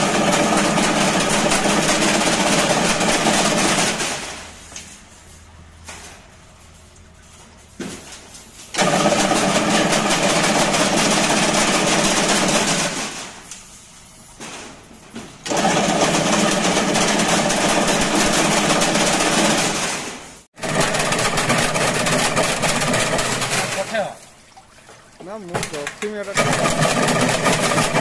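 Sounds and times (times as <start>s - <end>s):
fence weaving machine clattering: 0.0s - 4.3s, 8.7s - 13.2s, 15.5s - 24.1s, 25.2s - 28.0s.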